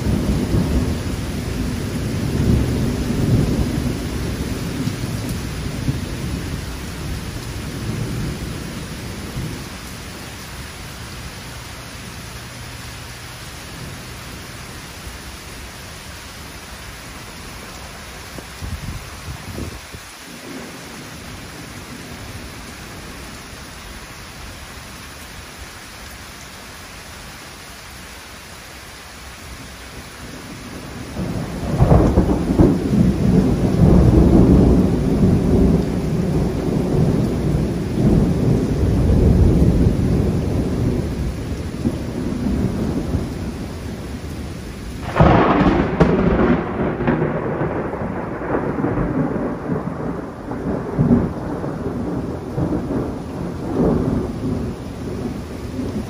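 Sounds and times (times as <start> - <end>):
rolling thunder rumble: 0.0 - 12.7, 17.6 - 23.3, 30.2 - 56.0
steady rain falling: 0.0 - 56.0
sharp thunderclap: 30.7 - 44.1, 45.0 - 56.0.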